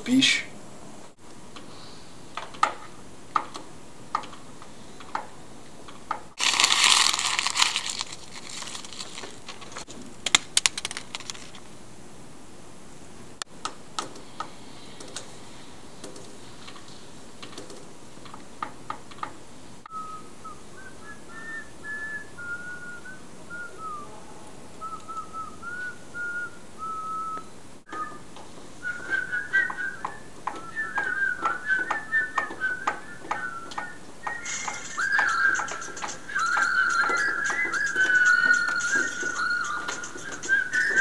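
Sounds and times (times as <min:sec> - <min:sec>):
person whistling a tune: 0:19.9 - 0:24.1, 0:24.8 - 0:28.2, 0:28.8 - 0:41.0
rhythmic taps: 0:27.9 - 0:41.0.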